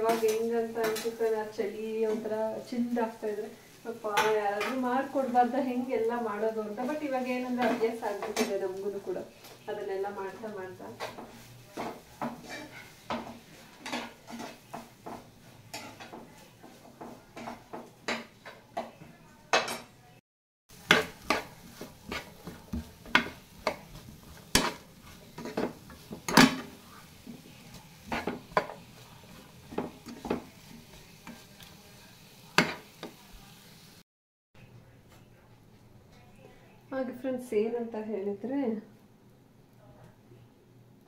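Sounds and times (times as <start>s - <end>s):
spoon scraping frying pan: 0.0s - 18.9s, 20.7s - 33.4s.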